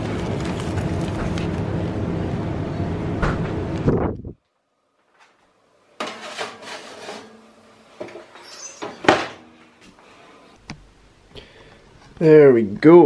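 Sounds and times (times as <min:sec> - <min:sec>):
oven door shutting: 0:03.0 - 0:04.1, 0:08.0 - 0:09.5
baking tray clattering and scraping: 0:06.0 - 0:07.4, 0:08.0 - 0:09.5.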